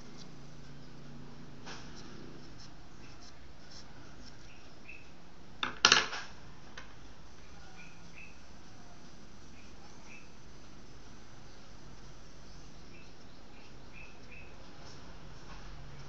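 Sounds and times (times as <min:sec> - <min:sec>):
pencil scratching on paper: 0:00.0 - 0:04.8.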